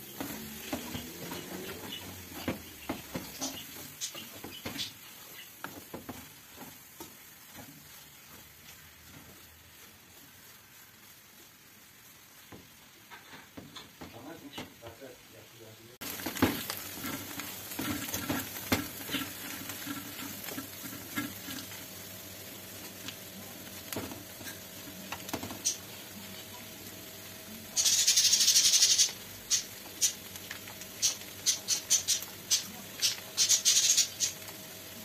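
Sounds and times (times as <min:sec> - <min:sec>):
wooden spatula scraping a pan: 0:00.0 - 0:14.8, 0:16.0 - 0:26.4
herbs sizzling in a pan: 0:00.0 - 0:35.0.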